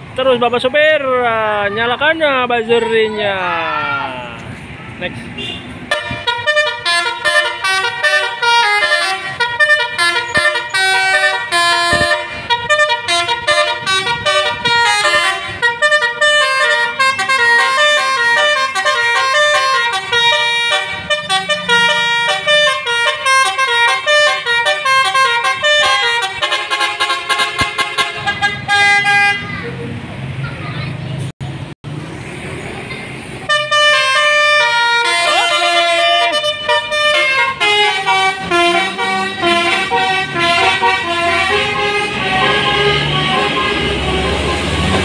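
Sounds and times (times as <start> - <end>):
musical air horn melody: 5.9 - 29.4, 33.5 - 45.0.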